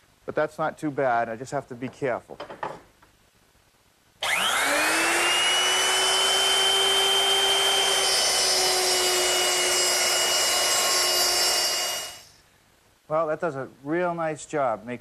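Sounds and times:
electric router whining: 0:04.2 - 0:12.3
router cutting wood: 0:04.2 - 0:12.3.

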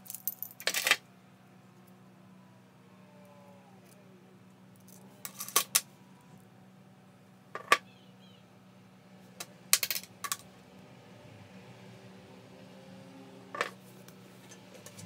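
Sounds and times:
small steel parts clinking: 0:00.0 - 0:01.0, 0:04.8 - 0:05.8, 0:09.7 - 0:10.4.

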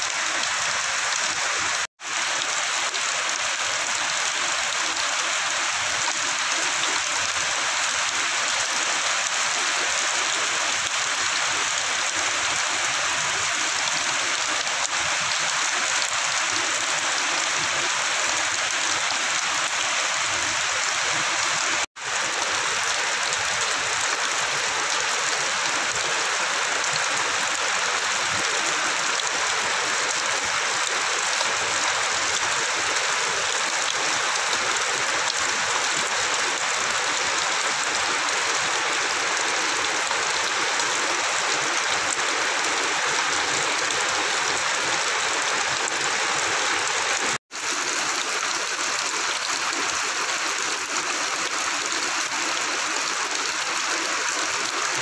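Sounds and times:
heavy rain splashing on concrete: 0:00.0 - 0:55.0.

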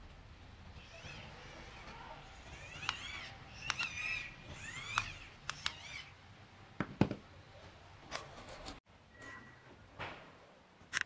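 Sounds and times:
high squeals: 0:00.8 - 0:06.2.

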